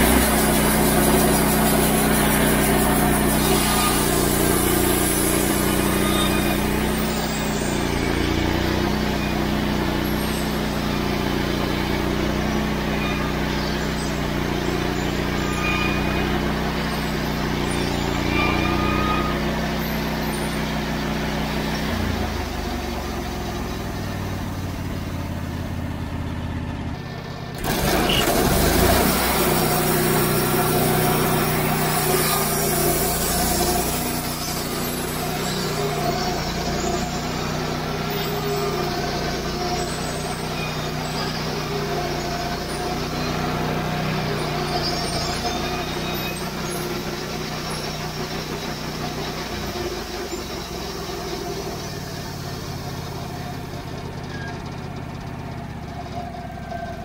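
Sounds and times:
bandsaw mill sawing log: 0:00.0 - 0:26.1, 0:27.1 - 0:57.0.

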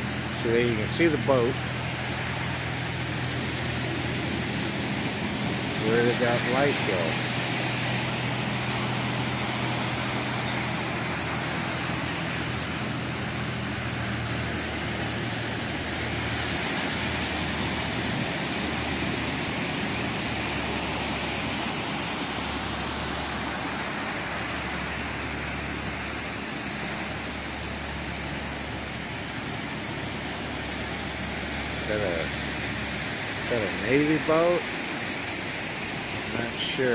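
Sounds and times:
low hum: 0:00.0 - 0:33.9.

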